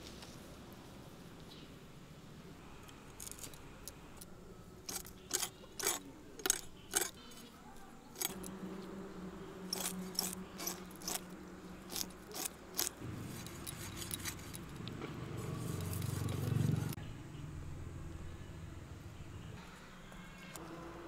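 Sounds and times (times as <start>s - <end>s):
fish scales scraped on blade: 4.9s - 7.2s, 8.2s - 8.5s, 9.7s - 14.8s.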